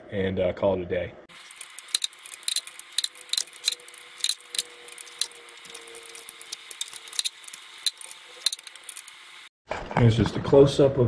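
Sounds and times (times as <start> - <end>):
wrench clicking against metal: 1.3 - 9.2.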